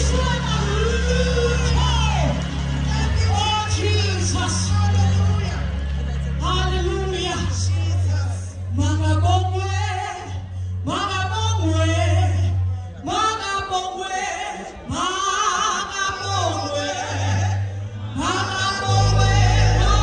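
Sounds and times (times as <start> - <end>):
group singing gospel song: 13.1 - 20.0.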